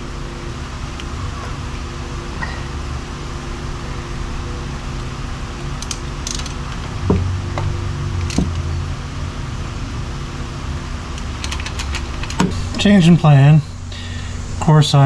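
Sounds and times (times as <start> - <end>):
steady low hum: 0.0 - 15.0
wrench clicking and clanking: 5.8 - 7.0, 7.6 - 8.7, 11.2 - 12.8.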